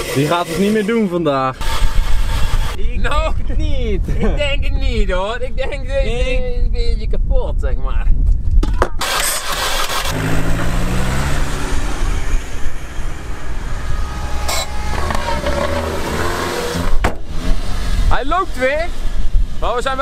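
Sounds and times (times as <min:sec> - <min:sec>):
car engine starting: 0:09.0 - 0:20.0.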